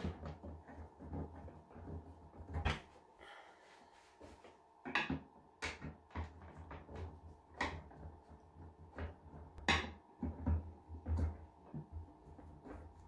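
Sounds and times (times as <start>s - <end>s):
plastic light cover clicks and knocks: 4.8s - 8.2s, 8.9s - 12.0s.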